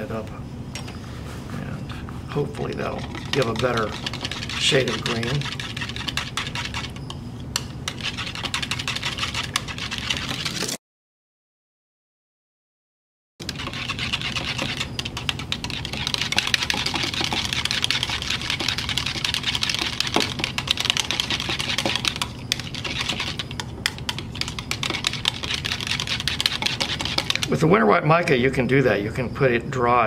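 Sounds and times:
whisk clicking against plastic jug: 2.6 - 10.5, 13.4 - 27.6.

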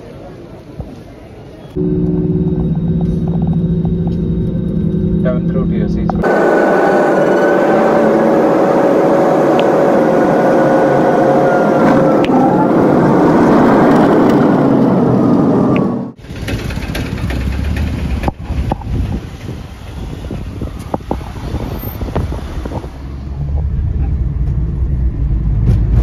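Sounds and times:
low engine rumble: 1.7 - 26.0
jet engine roar with whine: 1.8 - 16.2.

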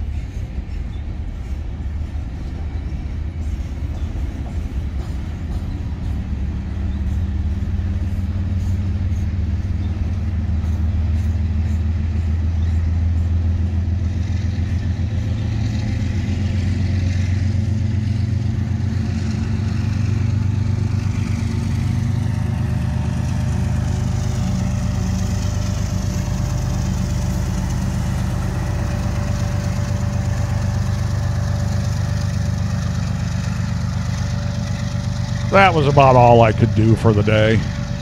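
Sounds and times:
diesel locomotive engine drone: 0.0 - 38.0.

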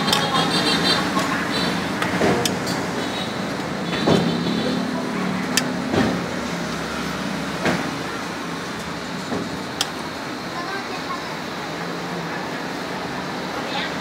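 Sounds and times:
street traffic passing: 0.0 - 14.0
sharp clicks and knocks: 2.0 - 4.4, 5.4 - 6.4, 8.6 - 10.1.

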